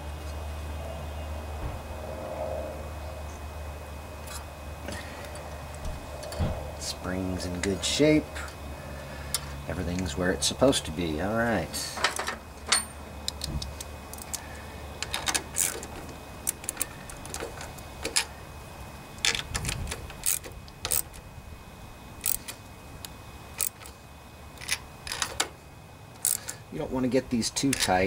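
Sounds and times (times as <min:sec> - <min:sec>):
socket wrench clicking on metal: 0:19.2 - 0:21.2, 0:22.2 - 0:22.6, 0:23.6 - 0:23.9, 0:26.2 - 0:26.6, 0:27.6 - 0:28.0.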